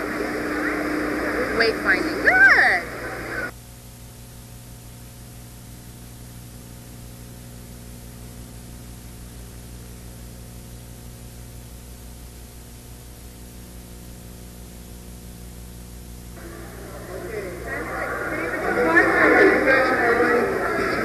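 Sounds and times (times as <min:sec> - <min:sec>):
loud rushing noise: 0:00.0 - 0:03.5
steady hiss with low hum: 0:00.0 - 0:21.0.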